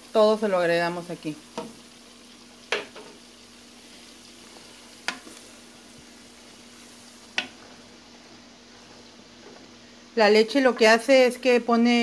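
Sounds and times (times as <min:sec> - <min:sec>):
pork frying in lard: 0:00.0 - 0:12.0
wooden spoon knocking on pot: 0:02.7 - 0:03.1, 0:05.1 - 0:05.4, 0:07.3 - 0:07.6.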